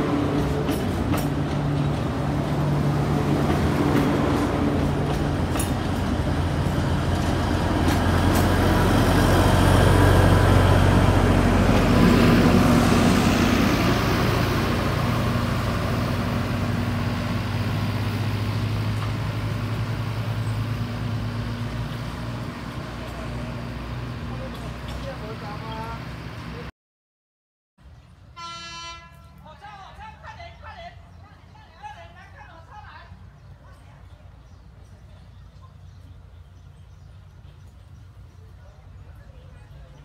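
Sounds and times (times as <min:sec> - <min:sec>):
diesel locomotive engine droning: 0:00.0 - 0:26.7, 0:27.8 - 0:40.0
train wheel clicks: 0:03.5 - 0:08.6.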